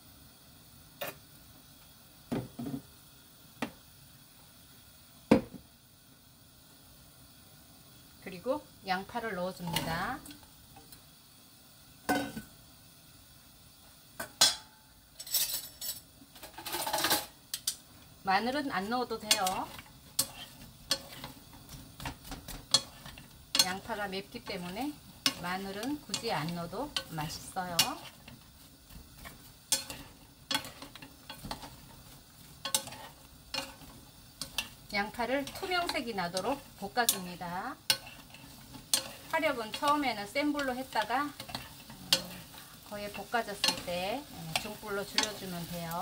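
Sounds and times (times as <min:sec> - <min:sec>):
onions sizzling: 0:00.0 - 0:46.0
kitchenware clattering and scraping: 0:14.4 - 0:17.3
wooden spatulas clacking on pan: 0:44.6 - 0:45.5.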